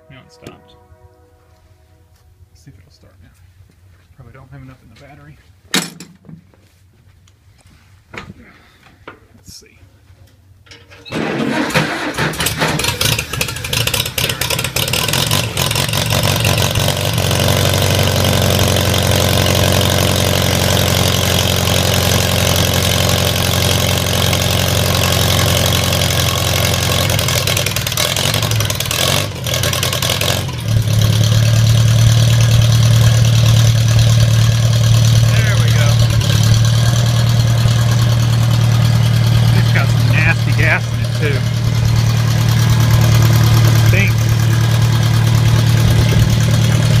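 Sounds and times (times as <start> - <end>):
engine starting and idling: 10.7 - 47.0.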